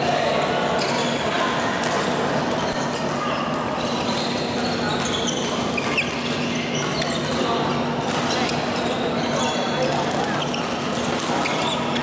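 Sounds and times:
short high squeaks: 0:03.8 - 0:07.4, 0:08.2 - 0:12.0
racket striking shuttlecock: 0:08.0 - 0:08.6.

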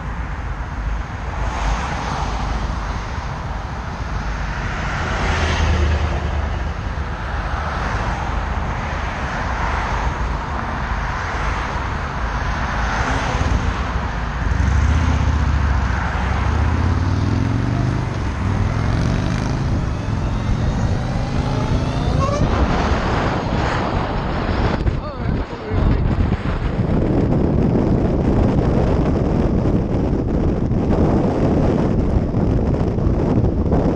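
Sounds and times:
motorcycles accelerating whine: 0:13.3 - 0:27.3.

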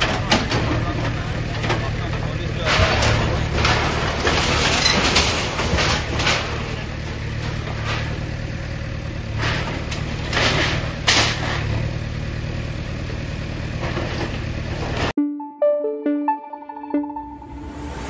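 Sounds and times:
diesel engine running: 0:00.0 - 0:15.1
crashes of brick and debris: 0:02.7 - 0:08.3.

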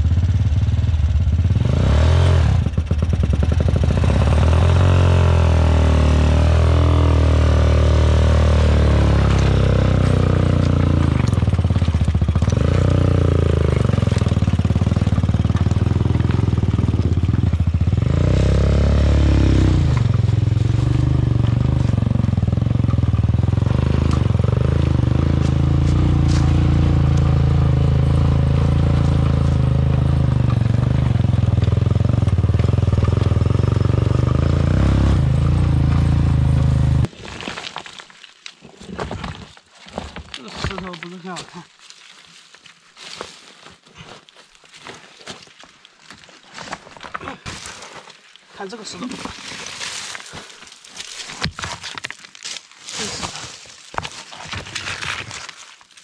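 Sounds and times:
quad bike engine revving: 0:00.0 - 0:37.1
tyres on loose stones: 0:09.2 - 0:18.4, 0:37.0 - 0:56.0.

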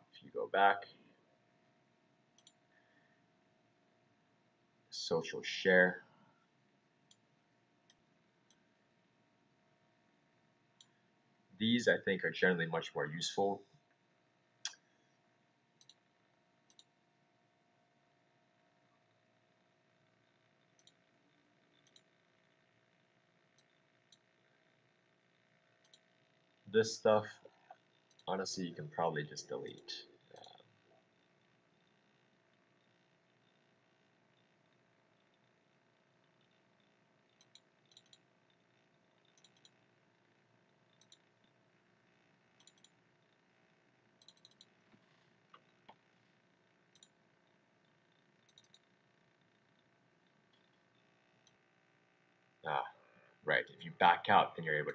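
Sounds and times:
faint steady hum: 0:00.0 - 0:54.9
computer mouse clicks: 0:02.4 - 0:02.6, 0:15.8 - 0:16.0, 0:16.6 - 0:17.0, 0:20.6 - 0:21.1, 0:21.7 - 0:22.1, 0:25.8 - 0:26.1, 0:36.2 - 0:39.8, 0:40.7 - 0:41.5, 0:42.6 - 0:43.4, 0:44.2 - 0:46.0, 0:46.9 - 0:47.2, 0:47.8 - 0:51.6.

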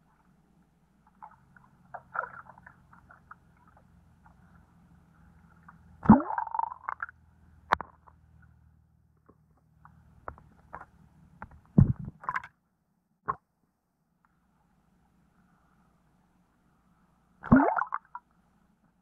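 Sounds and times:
muffled underwater knocks and clicks: 0:09.2 - 0:12.5
loud underwater thump: 0:11.8 - 0:12.2.

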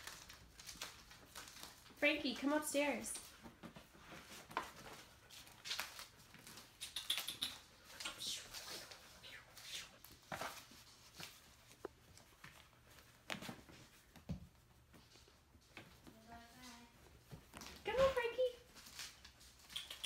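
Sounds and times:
dog sniffing: 0:04.0 - 0:10.2.

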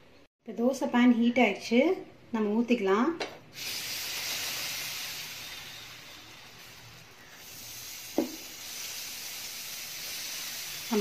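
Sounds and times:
batter sizzling on hot pan: 0:03.6 - 0:11.0.

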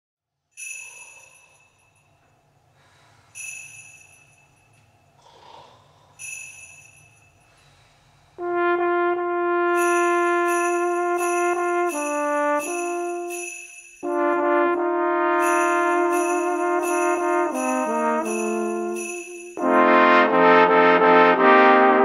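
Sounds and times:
sleigh bells shaking: 0:00.6 - 0:02.1, 0:03.4 - 0:04.8, 0:06.2 - 0:07.5, 0:09.7 - 0:20.4
high bell ringing: 0:00.6 - 0:02.2, 0:03.4 - 0:05.1, 0:06.2 - 0:07.6, 0:09.8 - 0:14.8, 0:15.4 - 0:19.9
trombone section chord: 0:08.4 - 0:22.0.

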